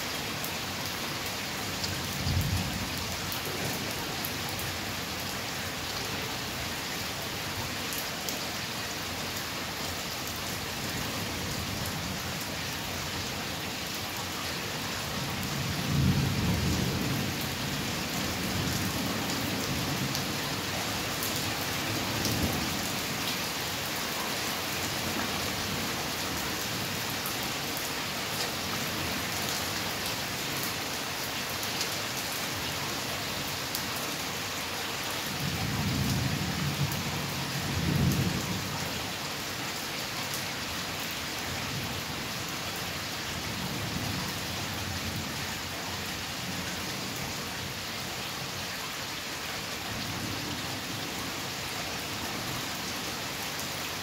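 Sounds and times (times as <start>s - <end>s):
rain falling: 0.0s - 54.0s.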